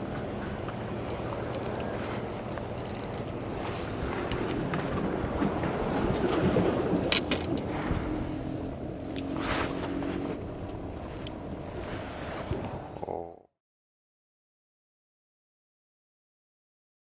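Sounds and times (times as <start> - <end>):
wind and sea rumble: 0.0 - 13.5.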